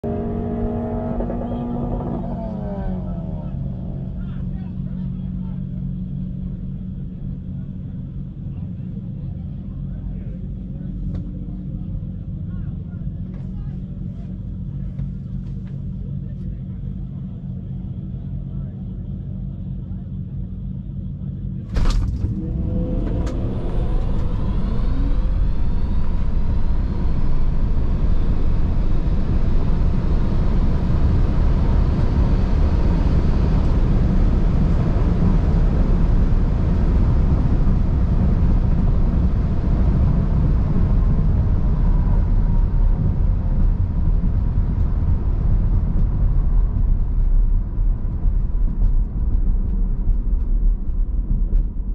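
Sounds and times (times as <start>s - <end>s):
tyre and wind noise: 28.2s - 51.9s.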